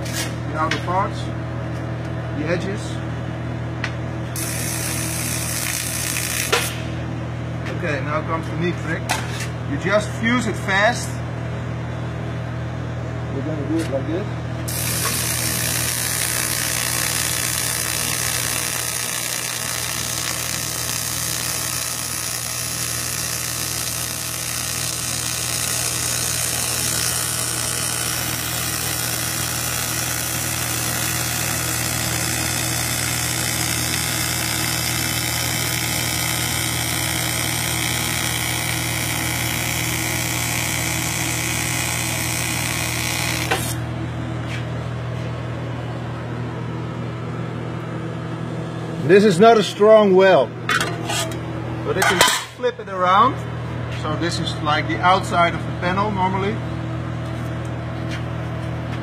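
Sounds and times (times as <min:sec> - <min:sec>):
steady low hum: 0:00.0 - 0:59.0
welding arc buzzing hiss: 0:04.3 - 0:07.2, 0:14.6 - 0:45.2.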